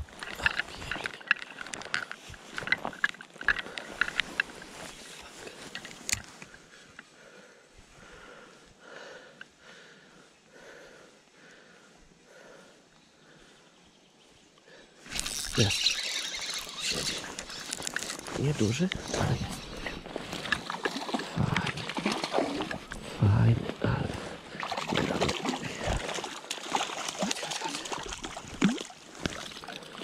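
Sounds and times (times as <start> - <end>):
spinning reel clicking: 15.1 - 17.8.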